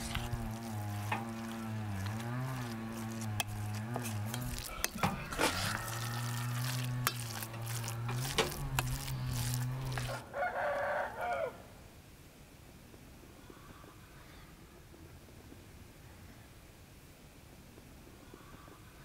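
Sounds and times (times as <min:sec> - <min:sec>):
spoon clicking and scraping bowl: 0:00.0 - 0:10.2
spoon stirring meat in bowl: 0:00.0 - 0:10.2
rooster crowing: 0:04.8 - 0:06.8, 0:10.0 - 0:11.7.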